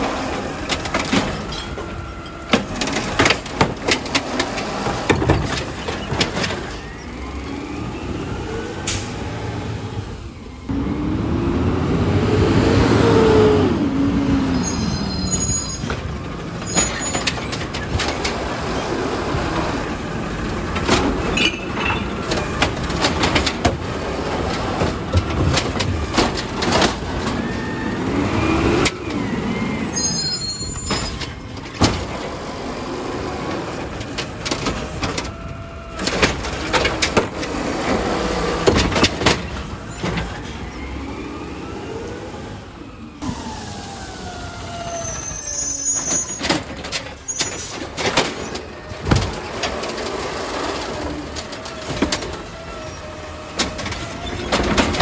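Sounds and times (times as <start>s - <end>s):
hydraulics running: 0.0s - 12.8s, 13.7s - 55.0s
clanks and knocks of bin lift: 0.1s - 6.8s, 20.5s - 27.5s, 30.8s - 32.4s, 33.5s - 40.5s, 46.4s - 52.6s, 53.5s - 55.0s
truck engine revving: 2.6s - 16.7s.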